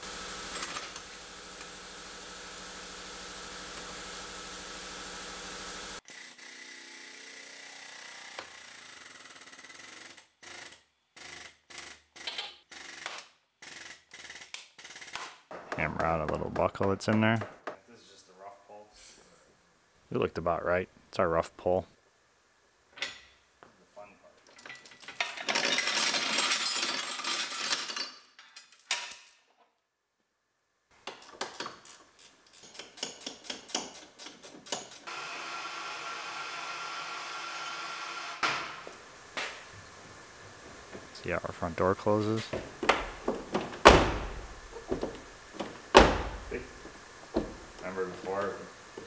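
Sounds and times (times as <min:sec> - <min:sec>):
steel chain rattling and clanking: 0:24.6 - 0:29.5.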